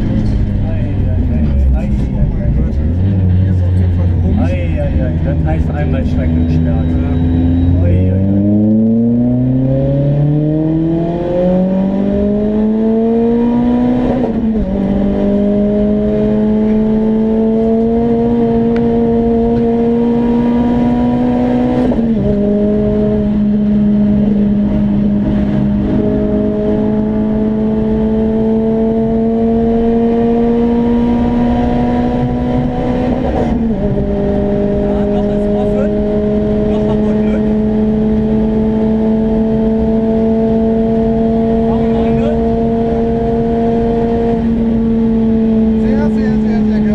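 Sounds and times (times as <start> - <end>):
car engine revving at full throttle: 0.0 - 46.9
road and tyre noise: 0.0 - 46.9.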